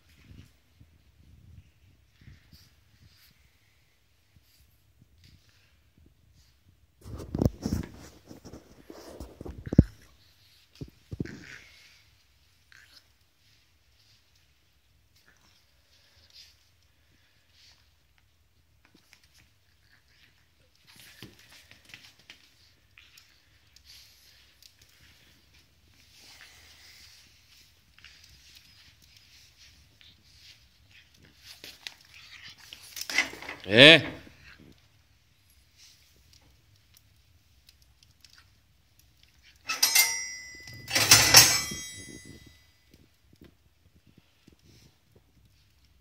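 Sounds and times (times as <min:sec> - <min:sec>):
puppy scuffling and clicking: 0:04.3 - 0:33.6, 0:34.2 - 0:39.7
clattering with metallic jingle: 0:39.5 - 0:42.7.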